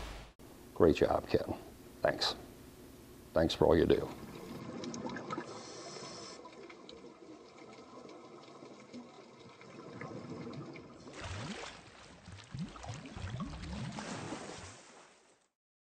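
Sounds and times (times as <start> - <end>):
underwater wash: 4.0 - 15.3
churning water and bubbles: 4.1 - 15.4.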